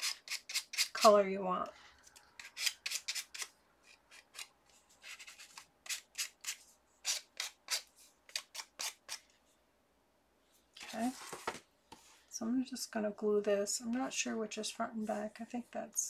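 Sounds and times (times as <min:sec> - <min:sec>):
block scratching paper: 0:00.0 - 0:01.0.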